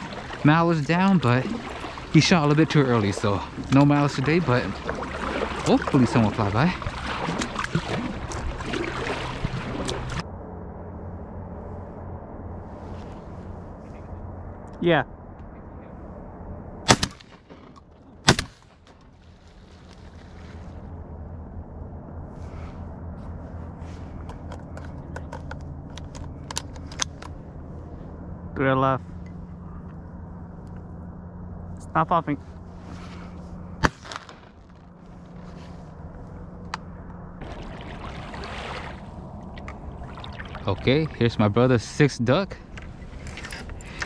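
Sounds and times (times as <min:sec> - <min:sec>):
water lapping against kayak hull: 0:00.0 - 0:10.2, 0:37.4 - 0:41.7
loud shotgun shots: 0:16.9 - 0:17.4, 0:18.3 - 0:18.6, 0:33.8 - 0:34.5.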